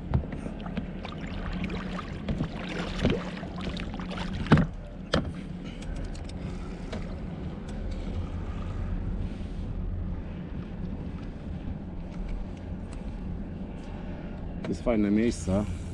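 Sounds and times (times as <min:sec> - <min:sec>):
oar splashing in water: 0:00.4 - 0:04.8.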